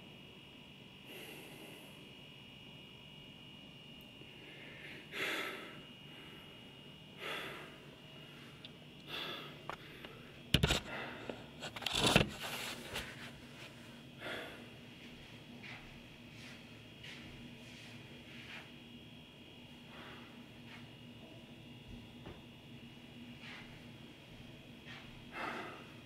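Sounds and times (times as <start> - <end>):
man breathing heavily: 1.0 - 2.1, 4.3 - 11.6, 12.4 - 18.7, 19.8 - 20.9, 24.8 - 26.0
camera handling knocks and rustling: 11.7 - 12.6.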